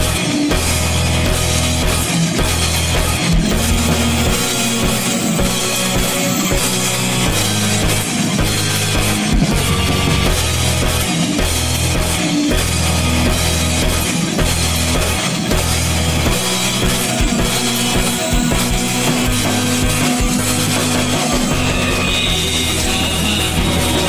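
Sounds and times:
shoegaze rock music: 0:00.0 - 0:24.0.

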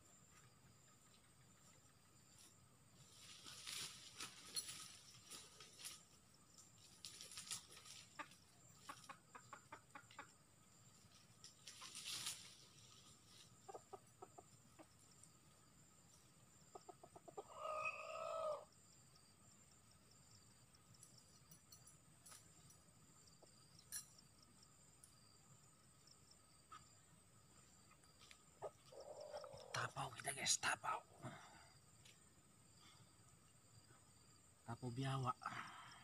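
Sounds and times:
undergrowth rustling: 0:02.3 - 0:09.0, 0:10.8 - 0:13.6
rooster clucking: 0:08.1 - 0:10.4, 0:13.6 - 0:14.9, 0:16.7 - 0:18.6
loud rooster call: 0:17.5 - 0:18.7.

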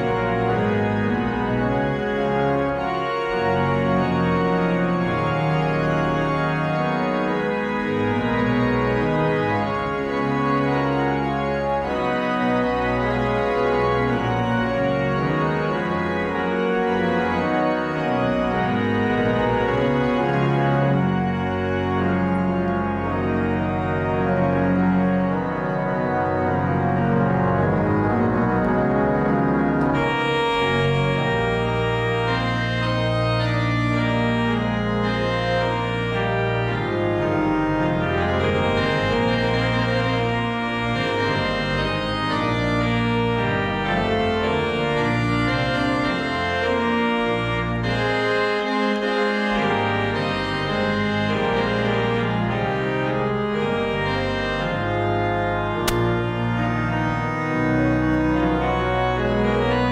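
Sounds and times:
organ playing full chords: 0:00.0 - 0:59.9.

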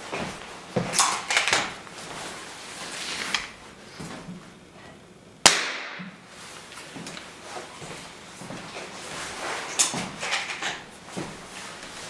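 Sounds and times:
air rifle crack: 0:05.4 - 0:06.2.

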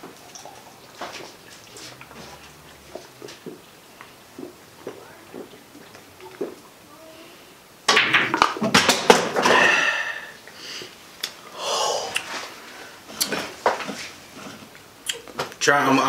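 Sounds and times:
men gasping and breathing out: 0:09.4 - 0:10.9, 0:11.5 - 0:12.2.

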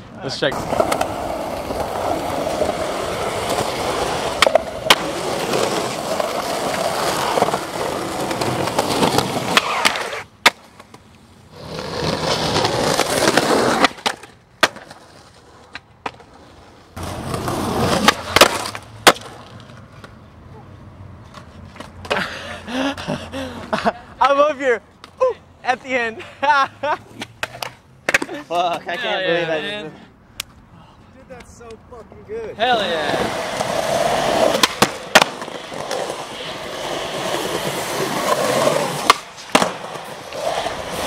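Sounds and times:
skateboard wheels rolling on concrete: 0:00.0 - 0:41.0
skateboard clacking on ground: 0:00.5 - 0:11.2, 0:11.9 - 0:20.2, 0:27.2 - 0:28.9, 0:33.0 - 0:41.0.

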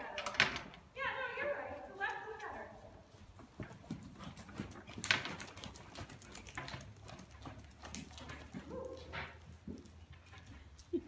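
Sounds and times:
horse hoofbeats on sand: 0:02.1 - 0:10.6.

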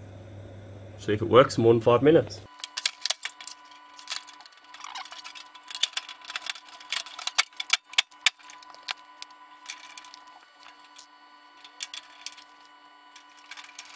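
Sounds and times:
metal panels clicking and knocking: 0:02.6 - 0:11.0.

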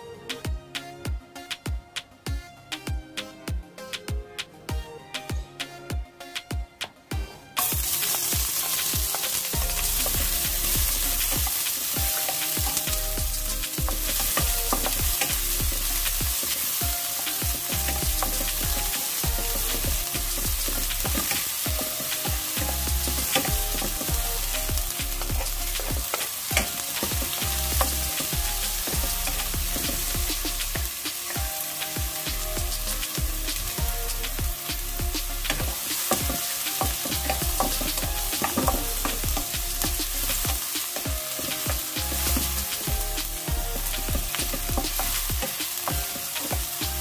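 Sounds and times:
onions sizzling in hot oil: 0:07.6 - 0:47.0
wooden spatula stirring in pan: 0:07.6 - 0:47.0.

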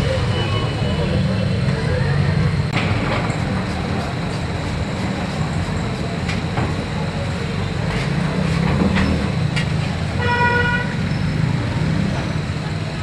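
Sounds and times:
street traffic rumble: 0:00.0 - 0:13.0
vehicle horn honk: 0:10.2 - 0:11.0.

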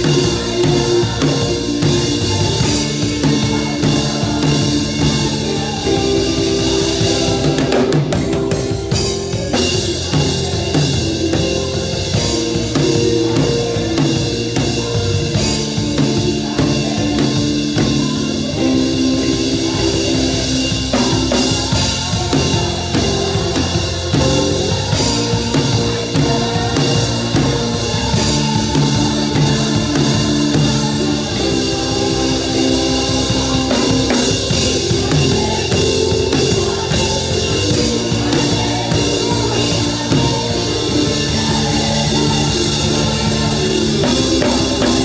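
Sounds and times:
band playing held chords: 0:00.0 - 0:45.0
drum kit groove: 0:00.0 - 0:45.0.

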